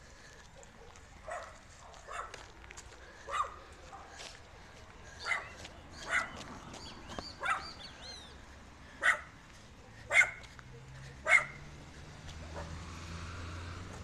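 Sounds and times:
dog barking: 0:00.5 - 0:02.4, 0:03.2 - 0:04.2, 0:05.2 - 0:06.4, 0:07.4 - 0:07.8, 0:09.0 - 0:11.7, 0:12.4 - 0:12.8.

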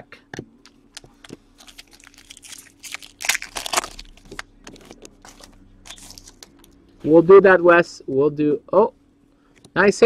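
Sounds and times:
foil wrapper crinkling: 0:00.9 - 0:06.8.

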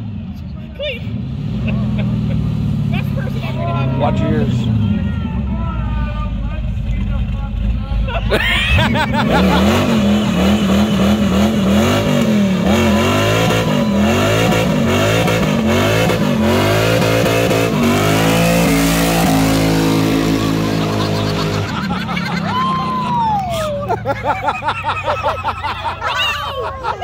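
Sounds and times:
car engine revving hard: 0:08.8 - 0:22.4.

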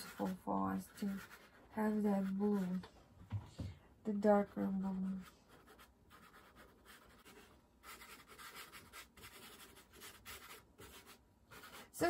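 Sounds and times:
pastel stick scratching on paper: 0:00.0 - 0:02.8, 0:04.4 - 0:12.0.

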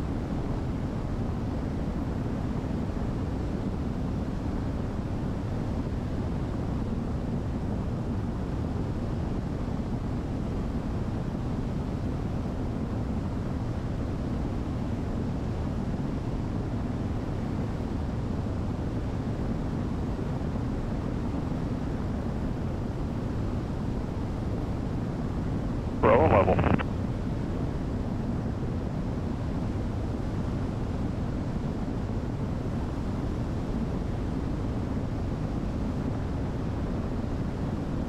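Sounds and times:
airplane engine drone: 0:26.0 - 0:26.8.

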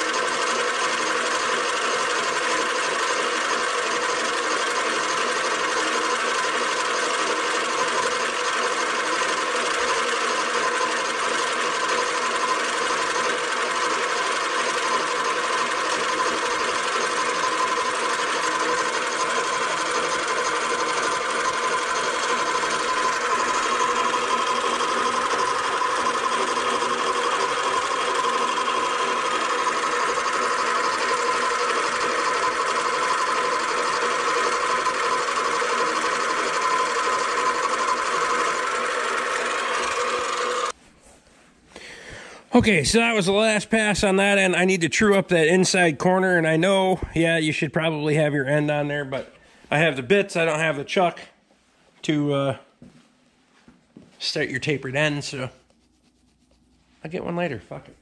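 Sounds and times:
metal lathe running with whine: 0:00.0 - 0:40.8.

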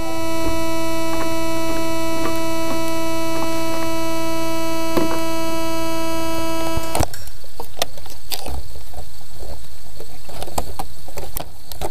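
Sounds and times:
drone motors humming: 0:00.0 - 0:07.1.

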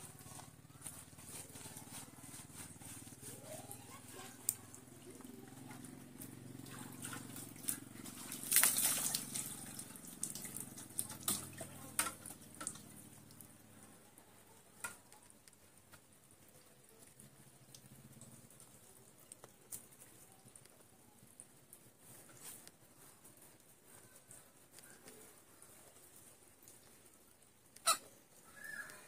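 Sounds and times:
faint low hum: 0:00.0 - 0:27.6
water splashing onto wet slab: 0:01.6 - 0:13.6
water dripping: 0:03.4 - 0:22.8, 0:24.8 - 0:29.0.

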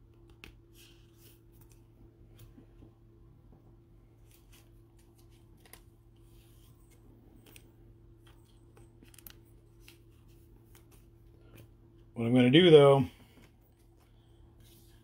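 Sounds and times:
gloved hands handling card: 0:04.1 - 0:12.1.

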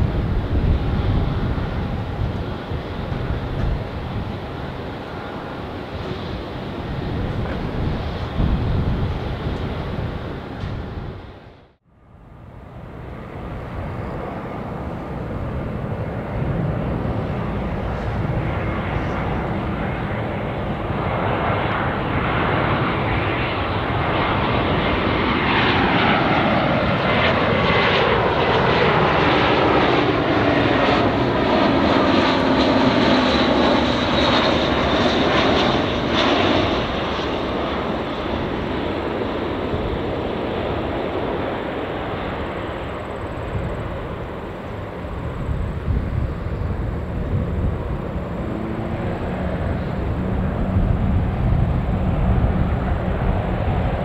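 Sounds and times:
jet plane roaring overhead: 0:00.0 - 0:54.0.

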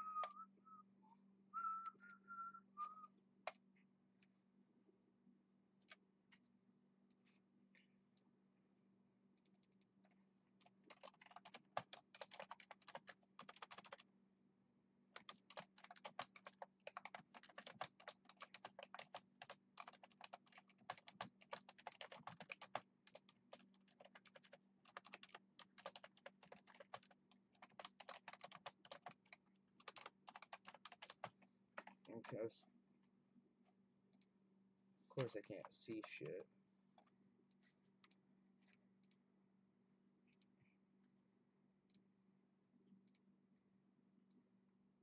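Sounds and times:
typing on computer keyboard: 0:10.6 - 0:14.0, 0:15.2 - 0:32.4.

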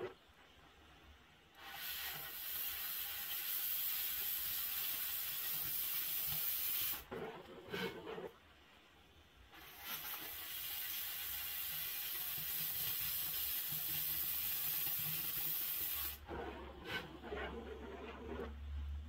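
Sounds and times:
cutting torch hissing: 0:01.6 - 0:07.1, 0:09.5 - 0:16.2.

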